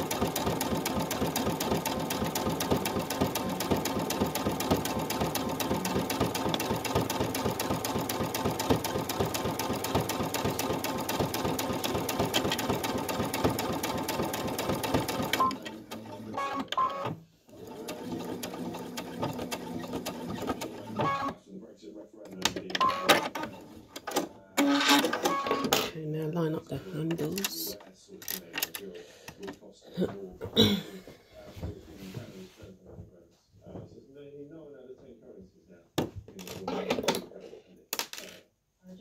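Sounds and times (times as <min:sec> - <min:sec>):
sewing machine stitching: 0:00.0 - 0:21.4, 0:22.4 - 0:25.9.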